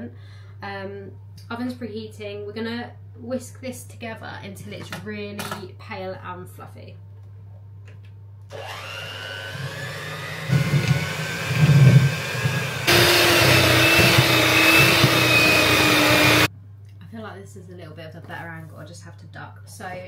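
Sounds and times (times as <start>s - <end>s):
beaters churning mixture: 8.5s - 16.5s
electric hand mixer whine: 8.5s - 16.5s.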